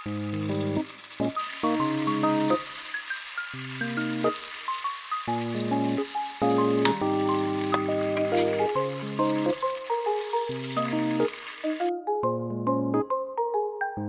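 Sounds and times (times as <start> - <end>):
tofu sizzling in sauce: 0.0 - 11.9
light melodic background music: 0.0 - 14.0.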